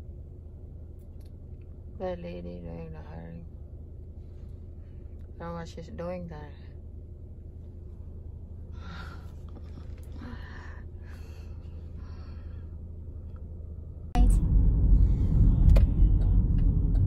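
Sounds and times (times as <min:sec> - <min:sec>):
car cabin engine hum: 0:00.0 - 0:17.0
road rumble: 0:00.0 - 0:17.0
breathy sounds: 0:08.7 - 0:12.8.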